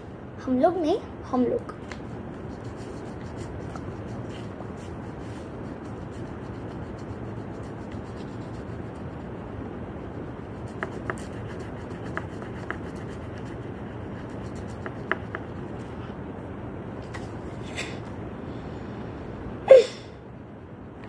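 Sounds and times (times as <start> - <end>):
crayon scratching on paper: 2.4 - 9.3, 10.4 - 15.8.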